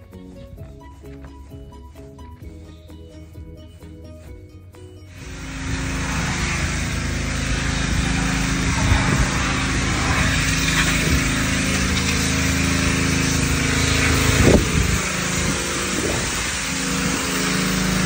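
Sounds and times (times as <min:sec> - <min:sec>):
small engine running: 0:05.1 - 0:18.0
steady hiss: 0:05.2 - 0:18.0.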